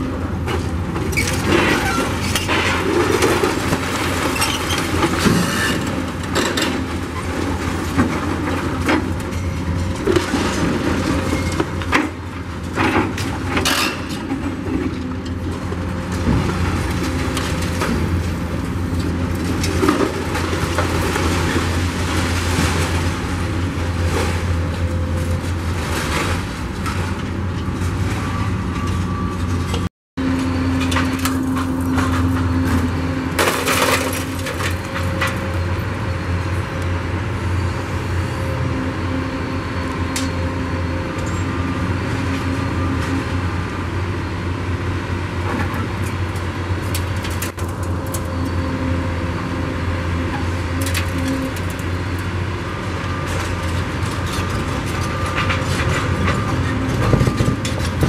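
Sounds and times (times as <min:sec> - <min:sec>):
excavator diesel engine running: 0:00.0 - 0:13.6, 0:14.2 - 0:58.0
concrete debris crashing: 0:01.1 - 0:08.9, 0:30.9 - 0:35.4.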